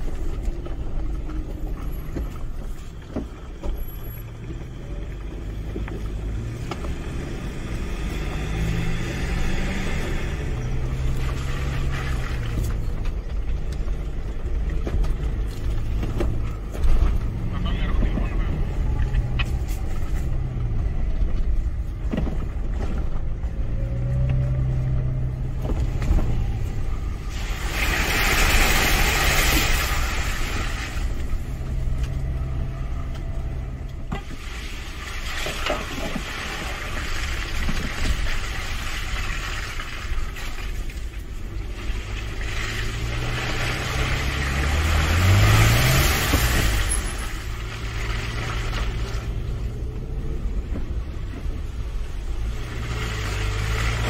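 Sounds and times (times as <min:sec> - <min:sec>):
car engine running: 0:00.0 - 0:28.2
tyres on gravel: 0:00.0 - 0:54.0.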